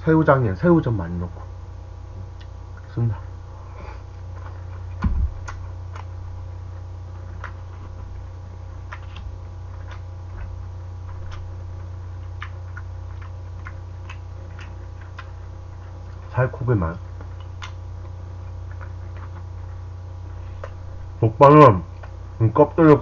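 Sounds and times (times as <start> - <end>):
steady low hum: 0.0 - 23.0
chewing clicks: 4.3 - 16.3, 17.0 - 19.8.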